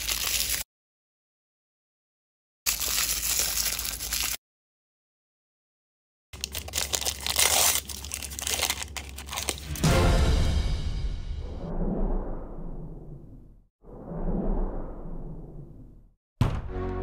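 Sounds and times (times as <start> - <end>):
plastic wrapper crinkling and tearing: 0.0 - 0.7, 2.7 - 4.4, 6.4 - 9.8.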